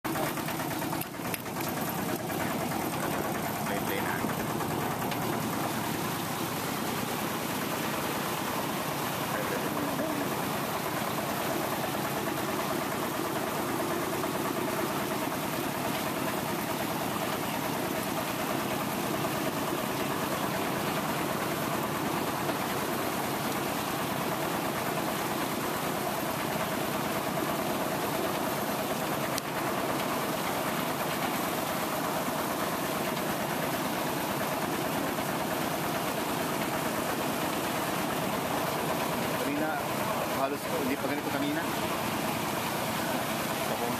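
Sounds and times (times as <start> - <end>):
motorcycle engine chugging: 0.1 - 23.3
water churning: 0.1 - 43.9.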